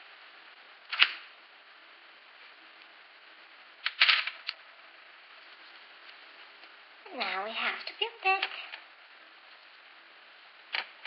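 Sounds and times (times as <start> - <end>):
plastic toy parts clicking: 10.7 - 11.0.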